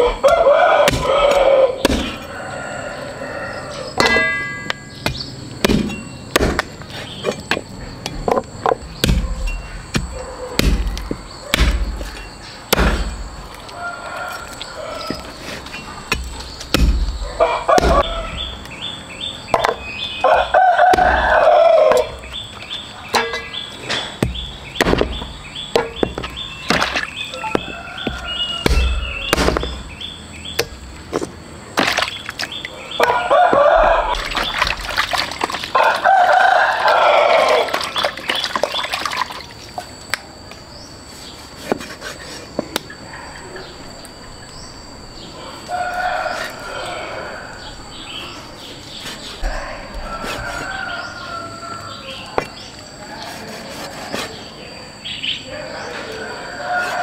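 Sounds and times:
rooster crowing: 0:00.0 - 0:05.0, 0:12.7 - 0:15.4, 0:17.1 - 0:19.2, 0:20.1 - 0:22.3, 0:25.8 - 0:30.0, 0:32.8 - 0:34.9, 0:35.6 - 0:38.0, 0:45.1 - 0:53.4, 0:55.4 - 0:57.0.

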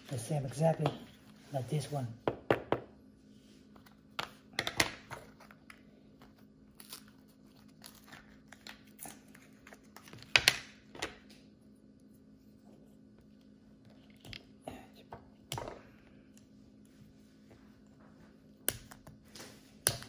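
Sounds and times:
blister pack crinkling and tearing: 0:06.7 - 0:10.2.

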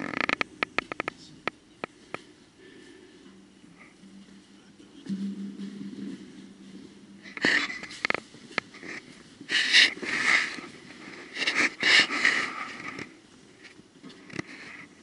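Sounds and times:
person breathing heavily: 0:02.0 - 0:04.1
sharp knocks: 0:03.3 - 0:08.2.

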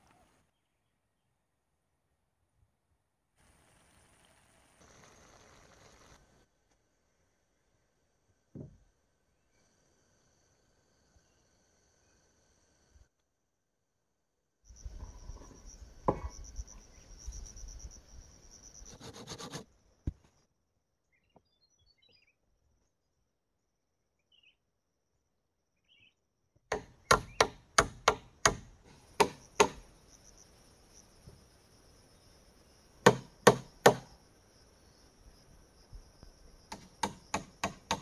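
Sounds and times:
high insect drone: 0:14.7 - 0:19.9, 0:27.5 - 0:38.0
hammer striking nail into wood: 0:26.7 - 0:29.8, 0:33.1 - 0:34.1, 0:36.7 - 0:38.0.

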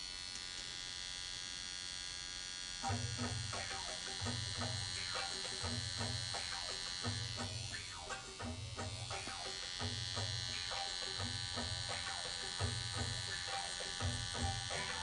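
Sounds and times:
tattoo machine buzzing: 0:00.0 - 0:15.0
background music with bass beat: 0:13.1 - 0:15.0.

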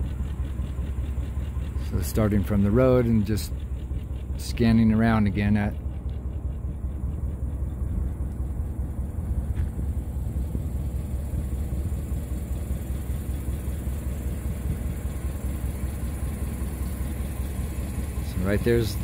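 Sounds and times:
low rumble: 0:00.0 - 0:19.0.

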